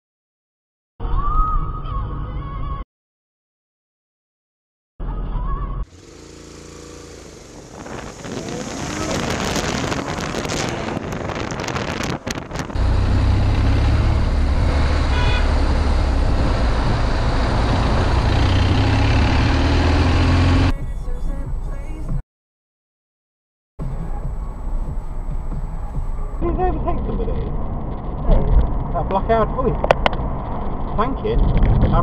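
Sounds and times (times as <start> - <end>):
motorcycle engine: 5.8 - 20.9
wind rumble on microphone: 7.4 - 19.6, 23.9 - 32.0.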